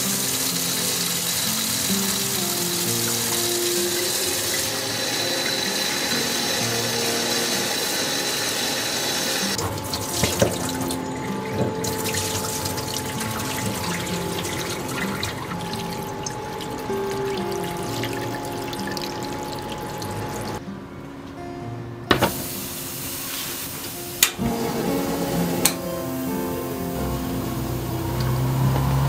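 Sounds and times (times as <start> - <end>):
water running into a metal sink: 0.0 - 20.6.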